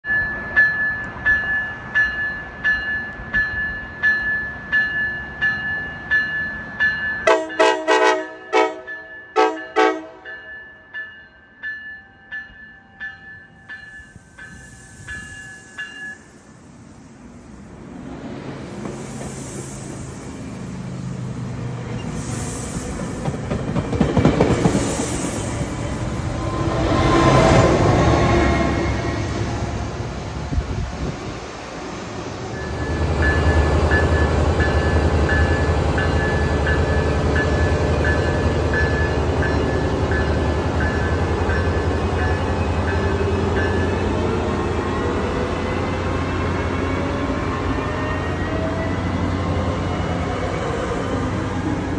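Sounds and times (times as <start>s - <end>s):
train cars rumbling past: 0.0s - 51.9s
train horn short blasts: 7.2s - 10.3s
diesel locomotive engine hum: 14.1s - 51.9s
wheels clicking over rail joints: 23.2s - 24.8s.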